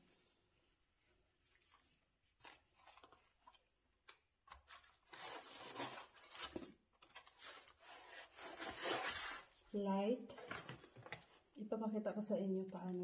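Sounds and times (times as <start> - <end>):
packaging rustling: 1.6 - 9.7.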